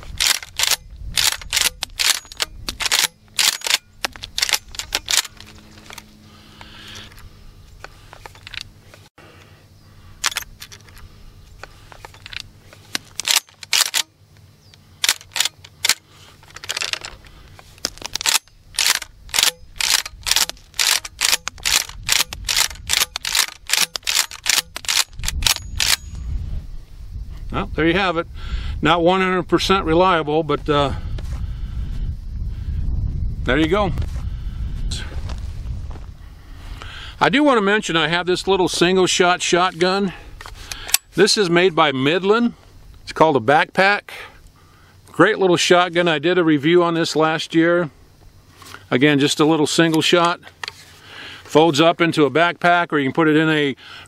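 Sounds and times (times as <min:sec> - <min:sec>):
shotgun being racked: 0:00.1 - 0:06.1, 0:10.2 - 0:11.0, 0:12.0 - 0:14.1, 0:15.0 - 0:17.2, 0:17.8 - 0:26.1.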